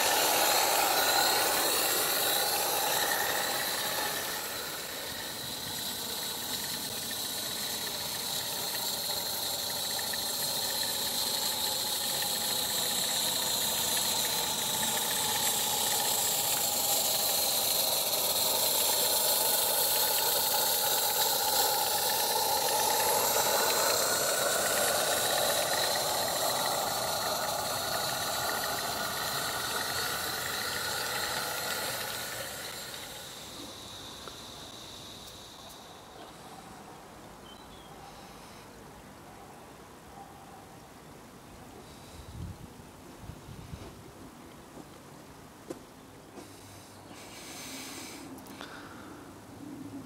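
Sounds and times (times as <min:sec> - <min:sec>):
wavering tones: 0:00.0 - 0:36.2
hiss of steam: 0:00.0 - 0:36.6, 0:46.4 - 0:49.2.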